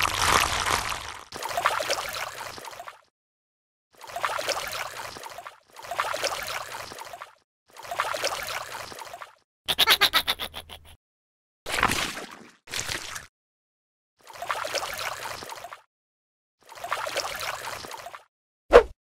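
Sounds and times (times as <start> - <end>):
wet squelching slime: 0.0 - 2.9.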